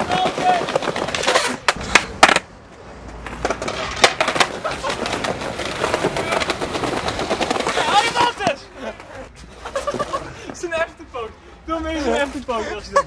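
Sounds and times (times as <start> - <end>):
skateboard snapping on pavement: 0.0 - 8.6
skateboard wheels rolling: 0.0 - 11.0.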